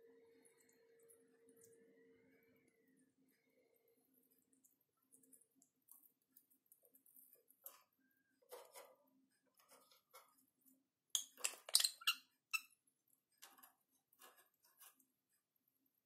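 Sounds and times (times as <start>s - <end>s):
birds clicking on cage bars: 11.2s - 12.0s.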